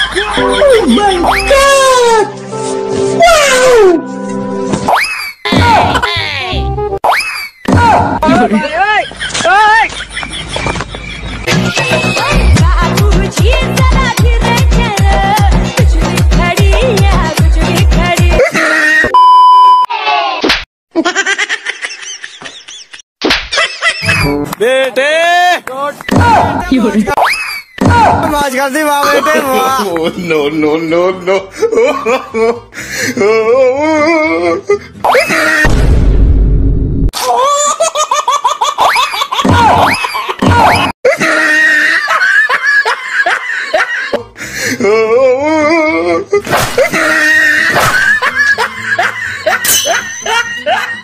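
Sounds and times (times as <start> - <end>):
high-pitched laughter: 5.0 - 6.6, 21.0 - 24.5, 37.2 - 44.2, 44.8 - 51.0
loud steady beep: 19.1 - 19.9.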